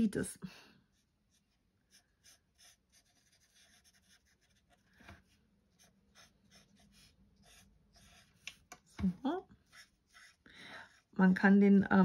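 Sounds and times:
marker scratching on card: 1.3s - 9.0s, 9.6s - 11.1s.

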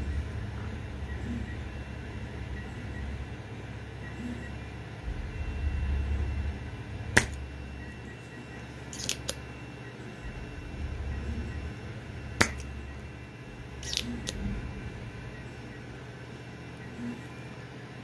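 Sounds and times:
low hum of printers: 0.0s - 18.0s
solder sucker charging clicks: 8.9s - 9.4s, 13.8s - 14.4s.

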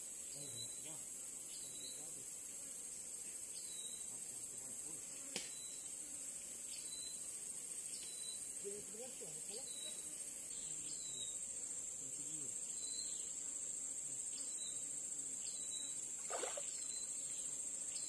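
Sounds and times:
insects droning: 0.0s - 18.0s
faint low voices: 11.9s - 12.7s.

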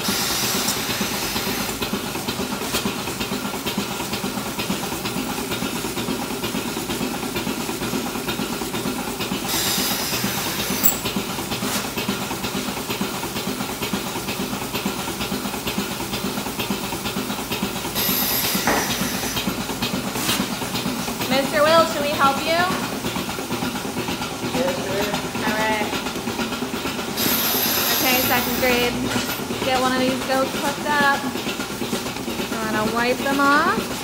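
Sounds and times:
milking machine vacuum hiss: 0.0s - 1.8s, 9.4s - 12.0s, 18.0s - 20.6s, 27.1s - 29.5s.

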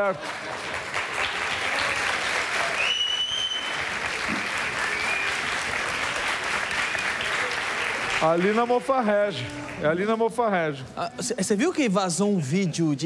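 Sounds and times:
audience applauding: 0.0s - 10.1s
short high whistle: 2.8s - 3.8s, 4.8s - 5.4s.

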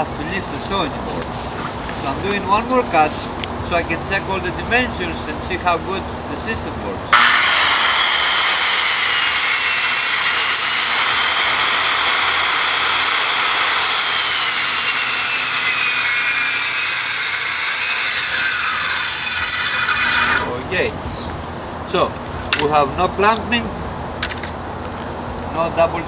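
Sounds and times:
circular saw cutting plywood: 7.2s - 20.6s.

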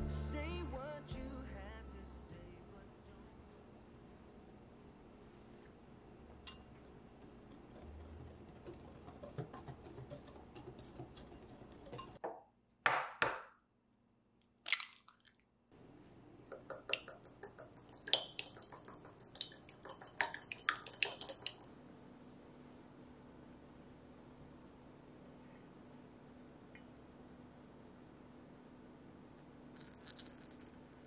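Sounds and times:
whisk scraping a glass bowl: 7.3s - 12.2s, 16.6s - 21.7s
egg cracking on a ramekin: 14.7s - 15.4s, 16.5s - 21.7s, 29.8s - 30.8s.

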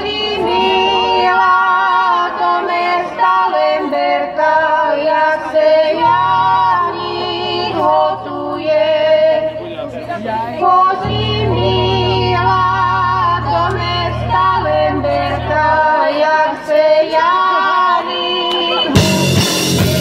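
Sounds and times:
low bass: 11.0s - 16.2s, 19.0s - 20.0s
live band music: 18.8s - 20.0s.

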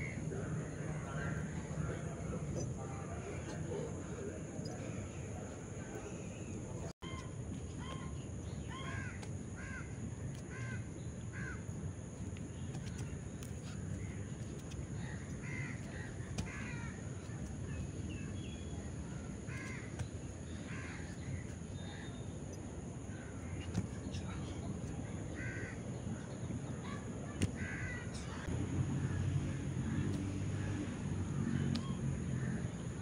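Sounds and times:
low background noise: 0.0s - 33.0s
crows cawing: 8.7s - 11.6s, 15.0s - 17.0s, 19.5s - 19.9s, 20.7s - 21.0s, 25.3s - 25.8s, 27.5s - 28.0s.

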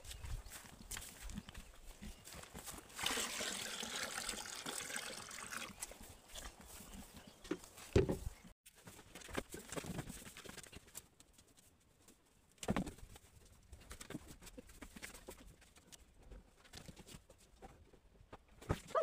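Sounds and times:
cattle hoof steps: 0.0s - 2.9s
footsteps on straw: 0.0s - 3.2s, 5.8s - 8.4s.

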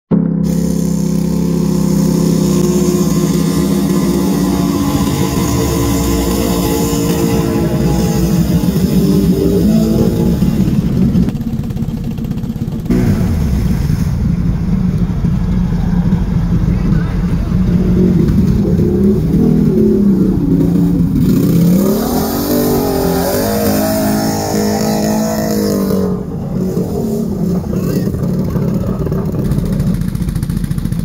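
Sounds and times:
atv engine revving: 0.1s - 31.0s
vehicle through muddy water: 0.2s - 31.0s.

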